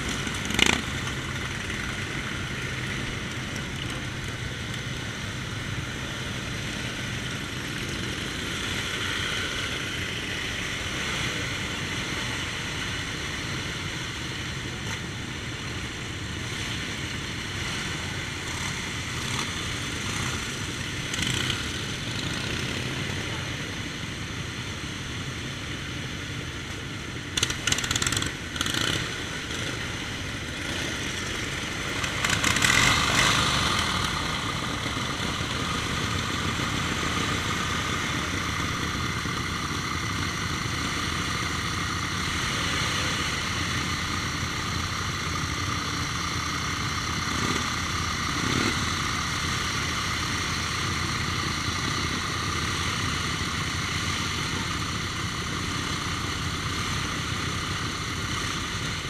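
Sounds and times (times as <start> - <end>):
motorcycle riding off: 0.0 - 23.8, 27.4 - 59.0
motorcycle engines idling: 0.0 - 59.0
engine revving: 17.6 - 23.2, 27.4 - 39.5, 47.0 - 49.7.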